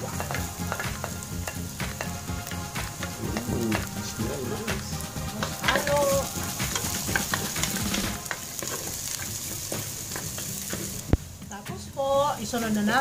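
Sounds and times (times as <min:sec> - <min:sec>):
onions sizzling in oil: 0:00.0 - 0:13.0
wooden spatula scraping a pot: 0:05.4 - 0:11.1.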